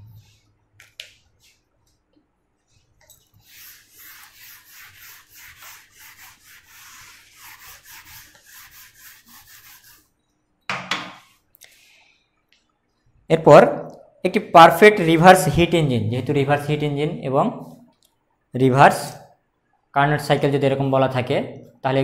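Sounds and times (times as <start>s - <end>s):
eraser rubbing on whiteboard: 3.4s - 10.1s.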